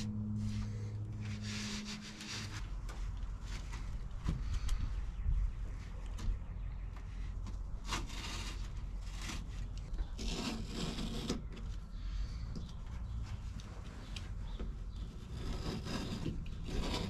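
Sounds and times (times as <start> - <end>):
low rumble: 0.0 - 7.9
carpet scraping against foam: 0.4 - 4.5, 7.8 - 11.7, 13.4 - 17.0.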